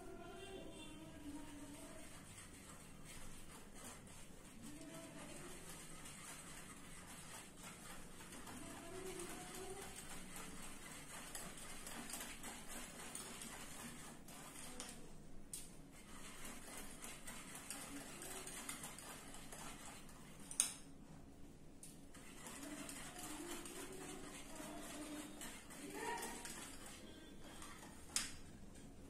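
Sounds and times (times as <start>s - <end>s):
spoon scraping bowl: 0.6s - 15.0s, 15.9s - 20.6s, 22.1s - 29.0s.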